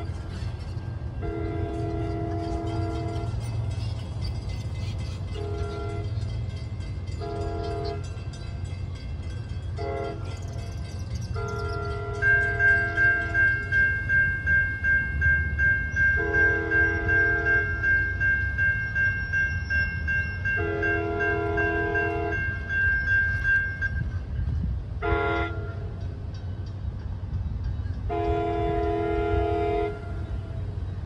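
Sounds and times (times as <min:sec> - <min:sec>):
low rumble of train: 0:00.0 - 0:31.0
train horn sounding: 0:01.2 - 0:03.6, 0:05.3 - 0:06.3, 0:07.2 - 0:08.2, 0:09.8 - 0:10.6, 0:11.3 - 0:14.2, 0:16.0 - 0:17.9, 0:20.6 - 0:23.6, 0:25.0 - 0:26.0, 0:28.1 - 0:30.6.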